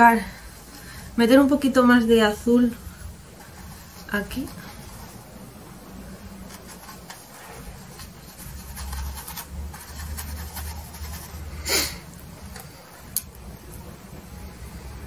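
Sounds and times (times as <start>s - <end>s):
brush rubbing paint on canvas: 2.3s - 11.6s.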